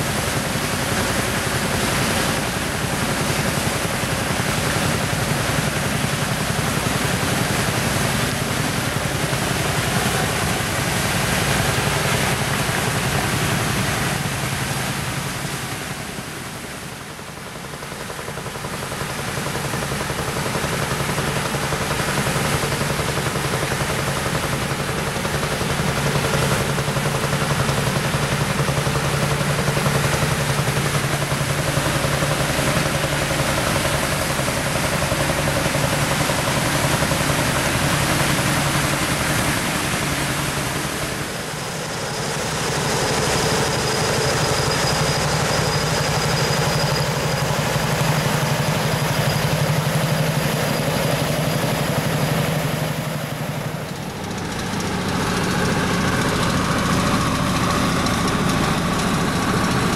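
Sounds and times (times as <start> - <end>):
water rushing through gates: 0.0 - 59.9
tractor engine running: 17.6 - 59.9.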